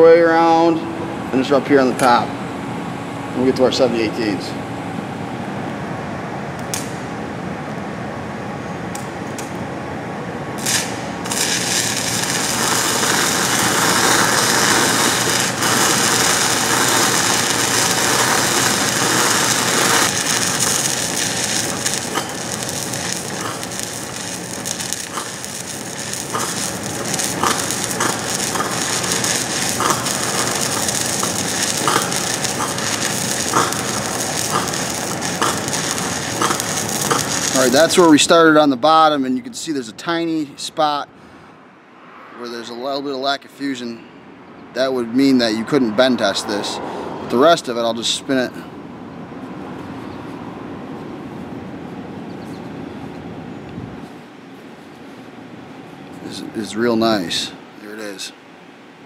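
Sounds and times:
sharp pops: 10.6s - 37.6s
welding arc crackling hiss: 10.6s - 38.6s.

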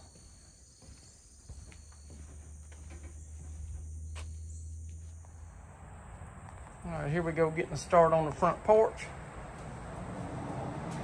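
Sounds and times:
insects droning: 0.0s - 10.9s
low steady hum: 1.4s - 8.3s.

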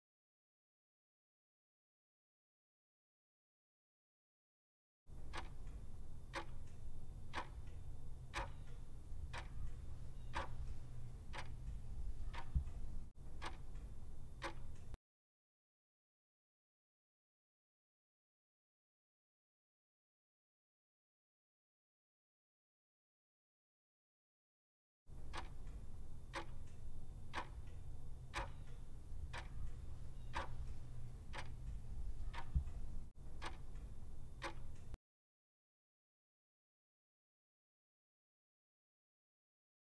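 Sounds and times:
low steady hum: 5.1s - 15.0s, 25.1s - 35.0s
clock ticking: 5.2s - 15.0s, 25.2s - 35.0s
countdown timer ticking: 25.3s - 35.0s.

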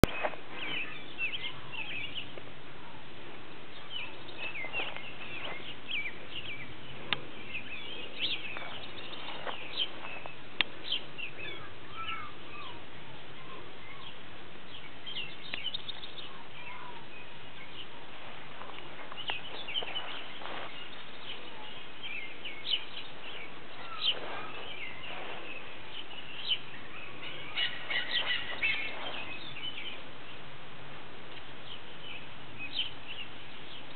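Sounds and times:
background hiss: 0.0s - 33.9s
small birds chirping: 0.0s - 33.9s.

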